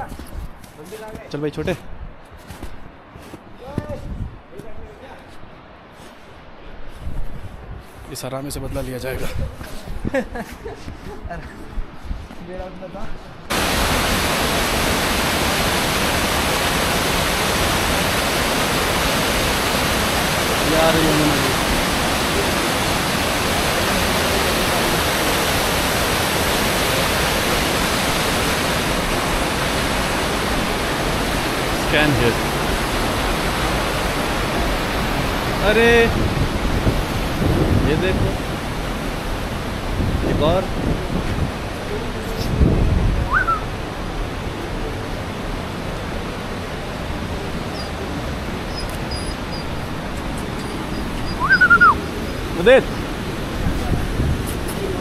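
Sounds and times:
fast river rushing: 13.4s - 55.0s.

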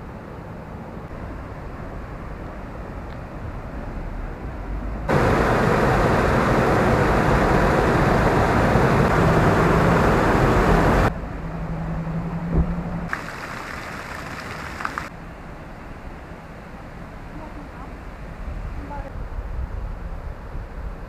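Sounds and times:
water rushing: 5.1s - 11.1s, 13.1s - 15.1s.

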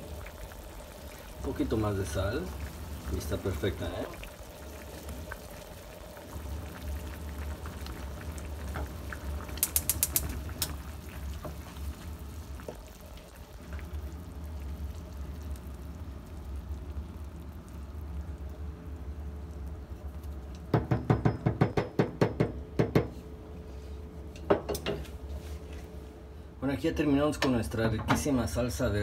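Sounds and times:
steady low hum: 0.0s - 20.7s
salsa bubbling and popping in pan: 0.0s - 23.0s
sharp clicks: 9.6s - 10.3s.

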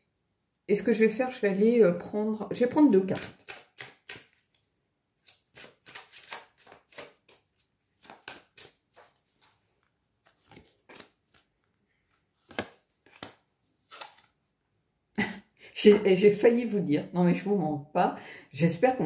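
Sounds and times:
cards shuffling: 3.1s - 14.4s.

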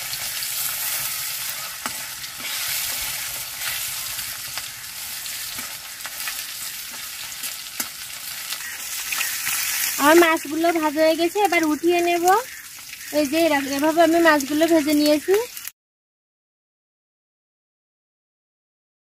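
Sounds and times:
fish sizzling in oil: 0.0s - 15.8s
metal spatula tapping pan: 0.9s - 3.8s, 5.4s - 9.6s.

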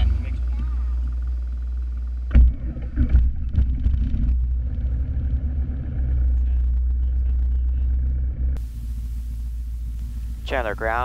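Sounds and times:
aircraft engine idling: 0.0s - 2.9s, 4.3s - 11.0s.

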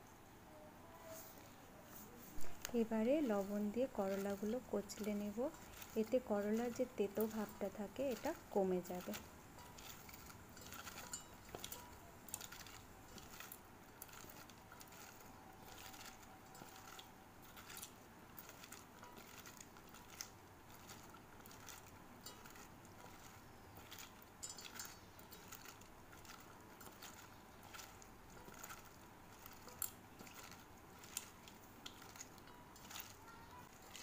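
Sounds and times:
wet squishing of hand kneading: 1.9s - 34.0s.

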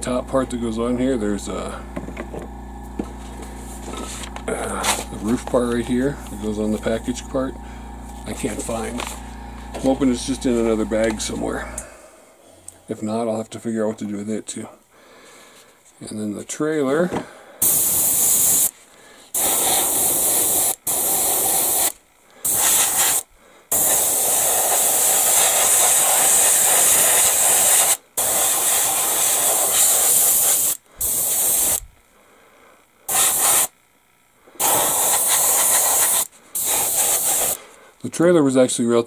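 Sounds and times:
airbrush hissing in bursts: 17.6s - 31.8s, 33.1s - 33.7s, 34.6s - 37.8s.

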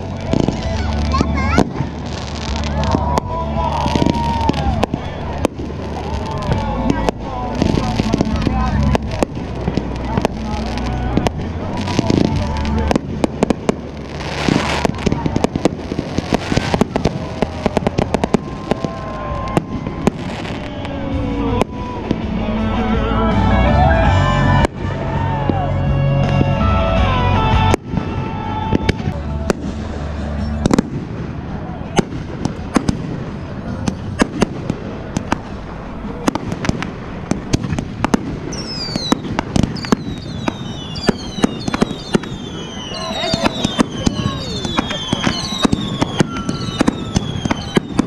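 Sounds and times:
fireworks cracking and popping: 0.0s - 23.4s, 24.0s - 48.0s
low rumble: 0.0s - 41.8s
falling firework whistles: 38.1s - 48.0s.

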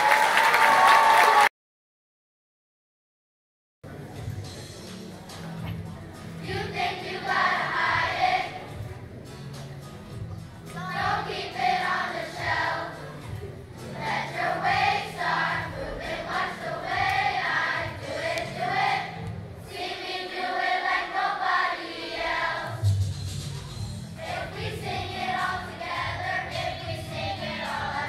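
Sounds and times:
children's choir singing: 6.4s - 8.9s, 10.7s - 22.9s, 24.2s - 28.0s.

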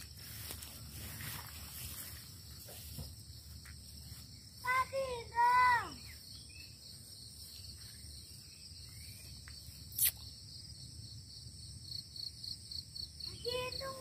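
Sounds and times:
crickets and insects chirping: 0.0s - 14.0s
pulsing insect trill: 0.0s - 14.0s.

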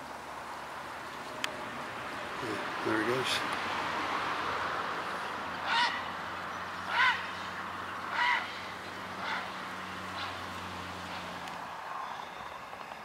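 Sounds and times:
goose honking: 5.6s - 6.0s, 6.9s - 7.3s, 8.1s - 8.6s, 9.2s - 9.5s.

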